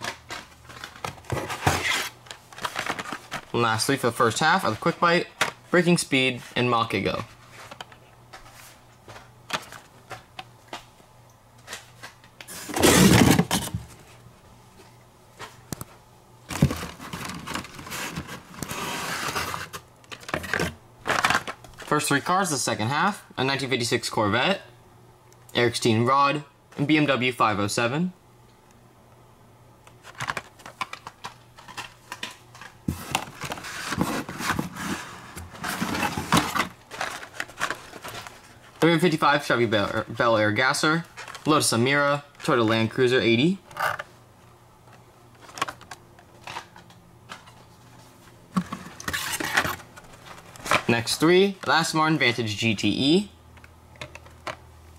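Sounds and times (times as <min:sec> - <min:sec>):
rustling and scraping of cardboard: 0:00.0 - 0:03.6, 0:11.6 - 0:14.2, 0:16.5 - 0:21.6, 0:30.0 - 0:39.0, 0:46.4 - 0:51.0
plastic blister packs crackling: 0:00.0 - 0:05.6, 0:35.6 - 0:39.0.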